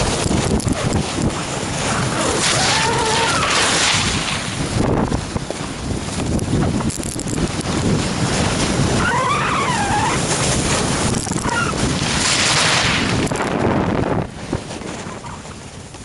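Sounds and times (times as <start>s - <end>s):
wind rushing over microphone: 0.0s - 16.0s
snowboard edge scraping snow: 1.9s - 4.7s, 10.1s - 14.2s.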